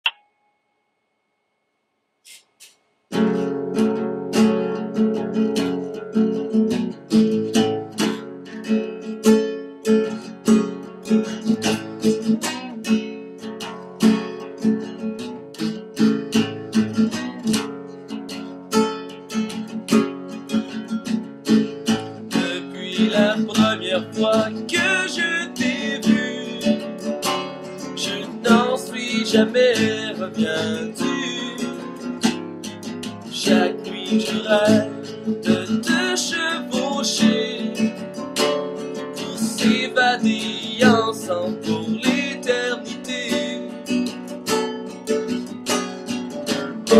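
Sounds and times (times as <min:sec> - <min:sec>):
acoustic guitar strumming: 0:03.1 - 0:46.9
man singing: 0:22.3 - 0:32.3, 0:33.0 - 0:44.2.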